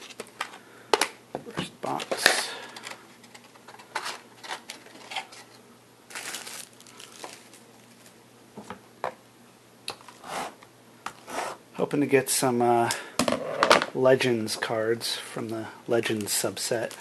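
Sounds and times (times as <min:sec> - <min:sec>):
plastic shrink wrap crinkling: 0:01.9 - 0:08.2, 0:16.0 - 0:17.0.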